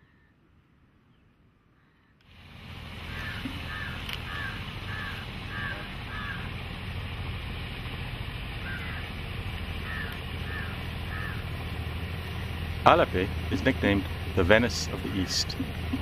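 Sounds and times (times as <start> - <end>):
boat engine humming: 2.2 - 16.0
bird calling: 3.0 - 7.8, 8.4 - 16.0.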